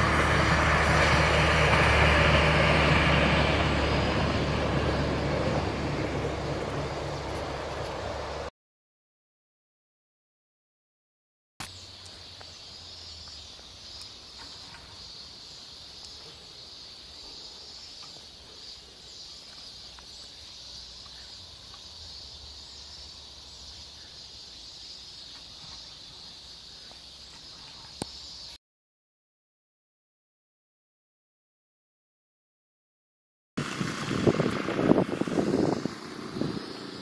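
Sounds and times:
insects droning: 0:00.0 - 0:08.5, 0:11.6 - 0:28.6, 0:33.6 - 0:37.0.

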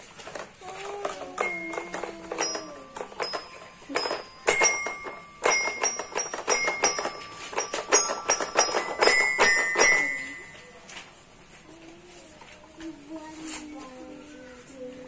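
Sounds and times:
toy xylophone strikes: 0:01.3 - 0:10.7.

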